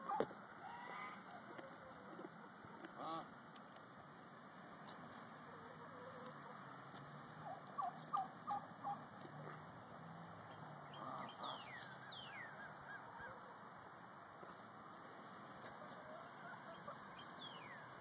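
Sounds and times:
poultry calling: 0:00.0 - 0:03.3, 0:07.4 - 0:09.1, 0:10.9 - 0:13.7, 0:15.5 - 0:18.0.

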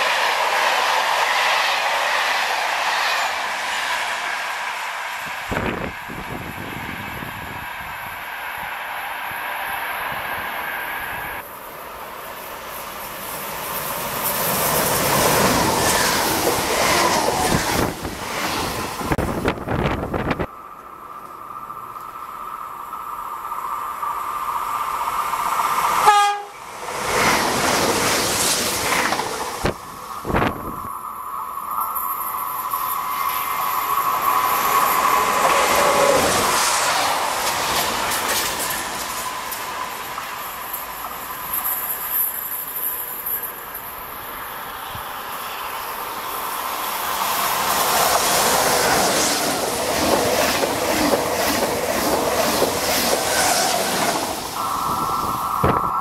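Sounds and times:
train running past: 0:00.0 - 0:56.0
falling whine: 0:54.1 - 0:56.0.

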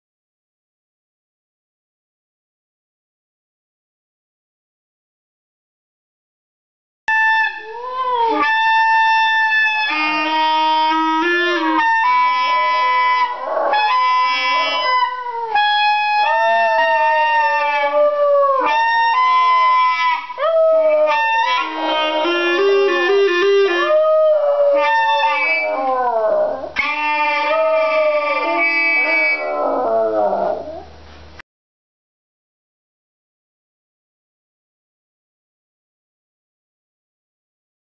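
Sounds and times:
clarinet wavering held notes: 0:07.1 - 0:30.9
small dog howling: 0:07.5 - 0:30.9.

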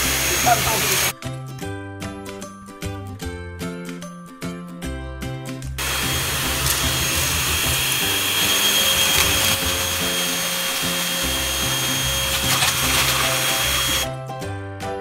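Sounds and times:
handheld vacuum cleaner running: 0:00.0 - 0:01.1, 0:05.8 - 0:14.1
background music: 0:00.0 - 0:15.0.

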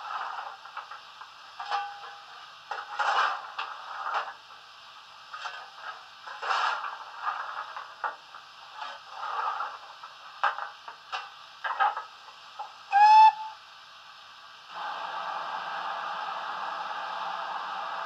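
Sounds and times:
steady steam hiss: 0:00.0 - 0:18.0
steam whistle blast: 0:12.9 - 0:13.6.

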